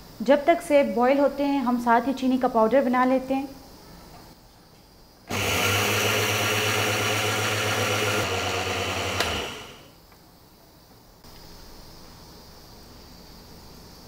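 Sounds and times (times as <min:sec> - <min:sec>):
electric grinder running: 0:05.3 - 0:09.9.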